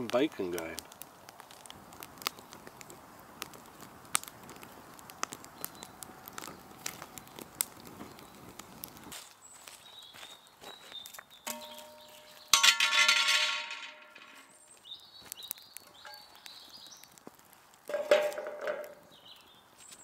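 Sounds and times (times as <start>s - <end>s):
metal fire pit clanging: 11.4s - 14.7s, 16.0s - 16.6s, 17.8s - 19.0s
wire grill rack clattering on metal: 11.5s - 14.5s.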